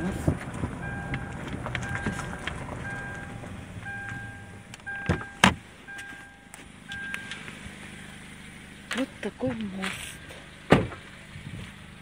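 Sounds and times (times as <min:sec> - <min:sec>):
low road rumble: 0:00.0 - 0:12.0
short electronic beep: 0:00.8 - 0:07.4.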